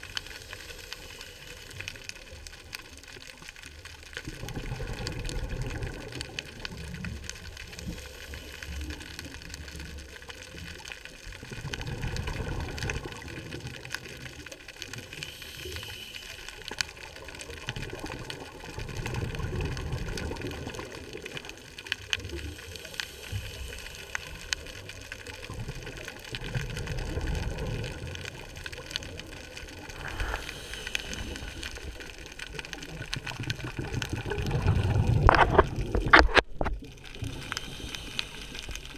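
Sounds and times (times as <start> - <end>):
muffled underwater rushing: 0.0 - 38.9.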